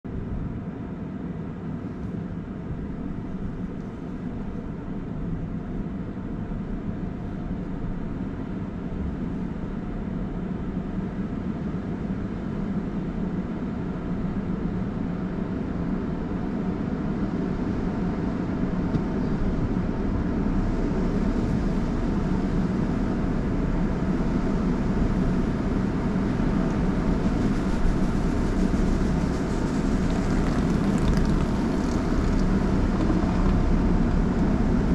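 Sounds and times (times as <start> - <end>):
car wash machinery running: 15.5 - 34.9
water spray on windshield: 26.5 - 34.9.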